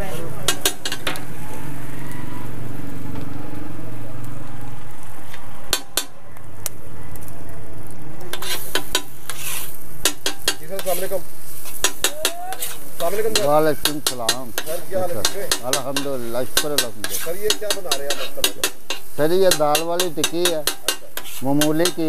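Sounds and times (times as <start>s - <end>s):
metal spatula scraping: 0.0s - 1.4s, 8.3s - 22.0s
food sizzling on griddle: 0.0s - 3.1s, 8.2s - 22.0s
spatula clanking on griddle: 0.4s - 1.3s, 5.7s - 6.2s, 8.3s - 22.0s.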